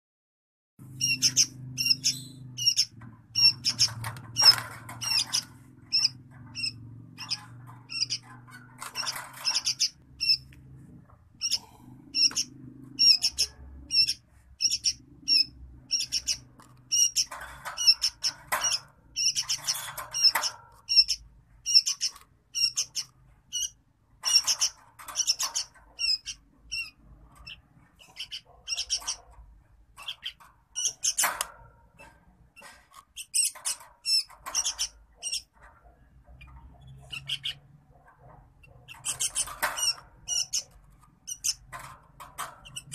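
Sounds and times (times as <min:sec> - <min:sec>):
bird squawking: 0:01.0 - 0:10.5, 0:11.4 - 0:29.3, 0:30.0 - 0:31.5, 0:36.4 - 0:37.8, 0:38.6 - 0:41.6.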